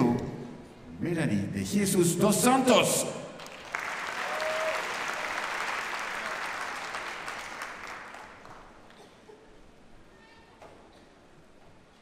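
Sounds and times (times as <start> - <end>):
audience applauding: 3.4 - 9.0.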